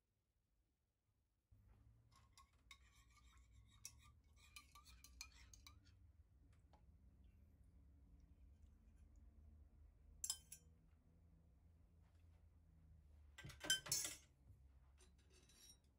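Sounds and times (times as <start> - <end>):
metal spoon clinking on enamel pan: 2.2 - 5.9, 10.2 - 10.7, 13.4 - 14.2.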